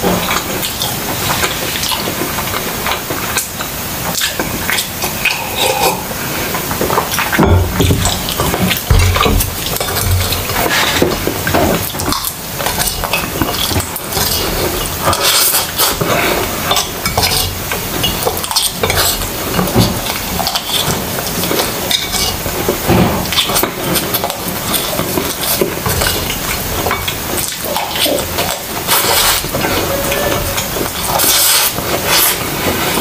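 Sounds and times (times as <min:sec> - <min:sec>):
wet chewing: 0:00.0 - 0:33.0
cutlery clinking on plates: 0:07.2 - 0:27.2.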